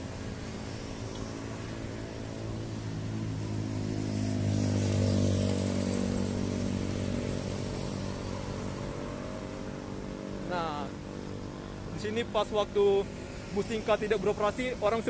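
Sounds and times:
vehicle engine passing: 0.0s - 11.4s
street traffic: 0.0s - 15.0s.

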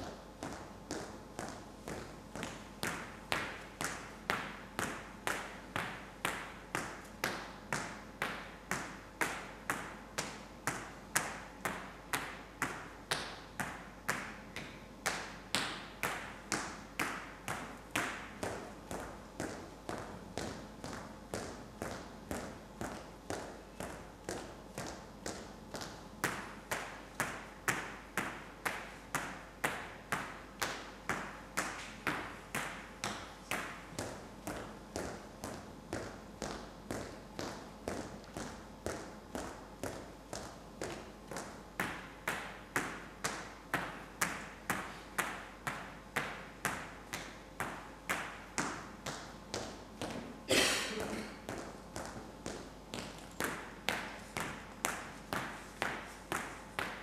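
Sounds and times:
footsteps on stage floor: 0.0s - 8.0s, 46.8s - 57.0s
hard-soled footsteps on stage: 51.3s - 57.0s.

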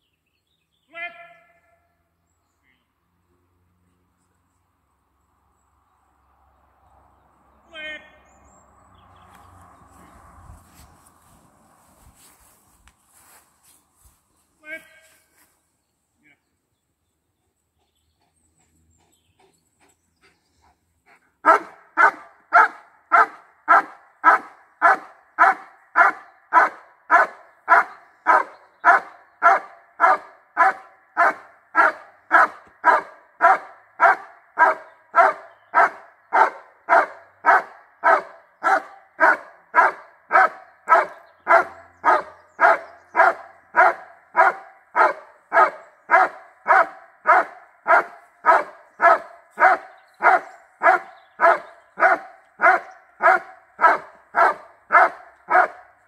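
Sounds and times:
dog barking: 21.4s - 55.9s.

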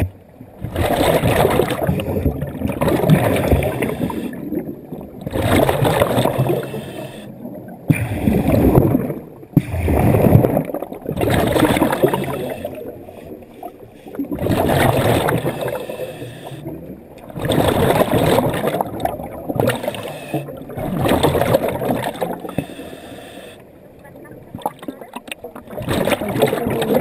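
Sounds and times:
exhaled bubbles gurgling underwater: 0.0s - 27.0s
diver inhaling: 3.7s - 4.5s, 6.5s - 8.5s, 15.2s - 16.7s, 19.8s - 20.7s, 22.3s - 23.8s.

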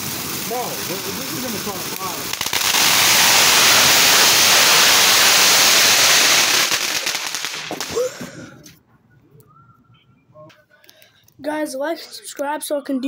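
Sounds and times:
firework hissing: 0.0s - 8.2s
firework crackles: 0.0s - 8.6s.

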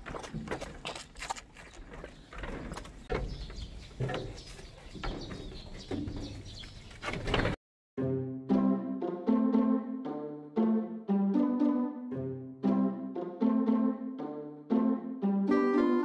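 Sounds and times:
rustling and knocking in a pen: 1.8s - 7.6s
music: 8.0s - 16.0s.

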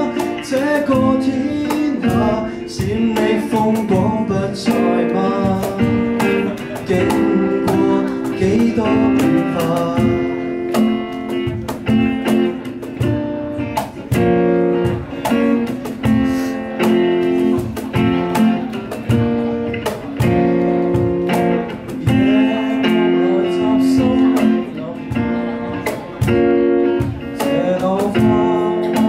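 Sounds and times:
acoustic guitar strumming chords: 0.0s - 29.0s.

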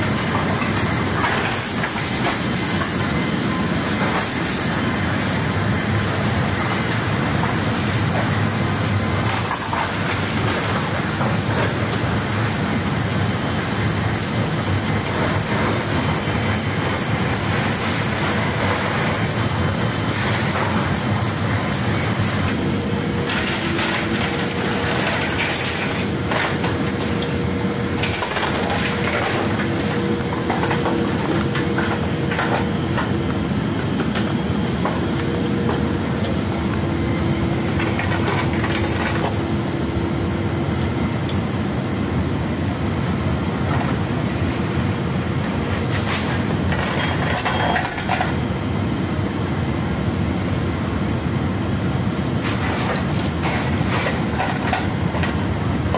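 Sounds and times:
steady hums: 0.0s - 47.1s
loud machine drone: 0.0s - 55.9s
metal chains clinking and rattling: 23.2s - 27.1s, 27.7s - 32.7s, 37.8s - 39.6s, 45.9s - 48.3s, 52.4s - 55.4s.

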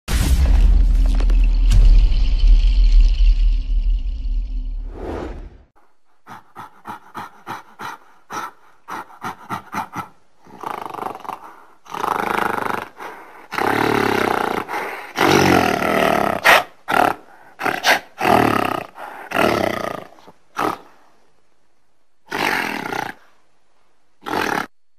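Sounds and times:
gorilla roars: 9.1s - 20.9s, 22.3s - 23.2s, 24.2s - 24.7s
gorilla barks: 13.5s - 21.0s, 22.3s - 23.2s, 24.2s - 24.8s.

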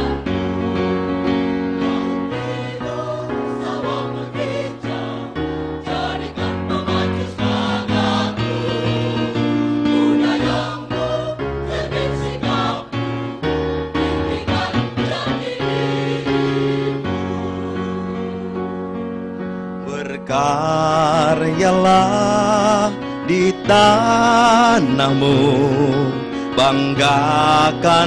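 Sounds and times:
choir singing: 0.0s - 0.6s, 1.6s - 18.7s
instrumental accompaniment: 0.0s - 20.0s.

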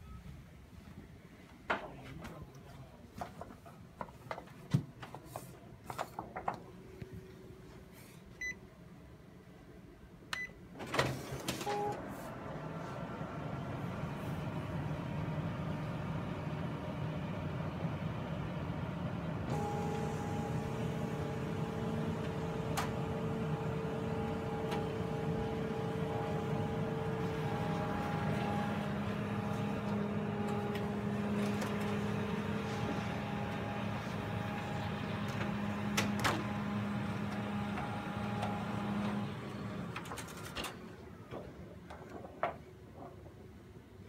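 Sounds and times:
copier running: 10.8s - 41.8s.

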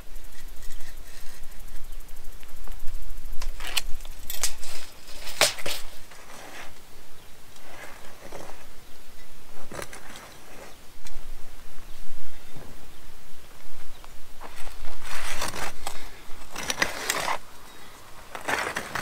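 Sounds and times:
metal tool scraping soil: 0.2s - 1.8s, 3.5s - 6.8s, 7.6s - 8.7s, 9.6s - 10.8s, 14.4s - 19.0s.

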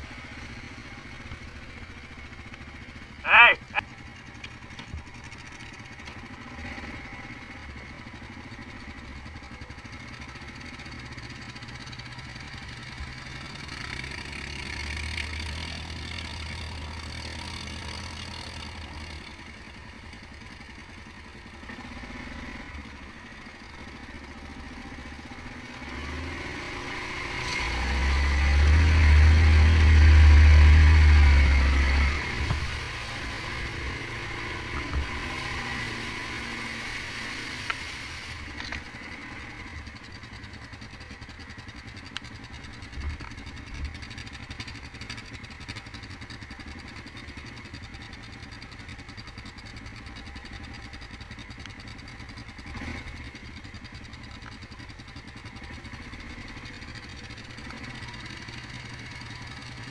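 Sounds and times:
quad bike engine running: 0.0s - 59.9s.

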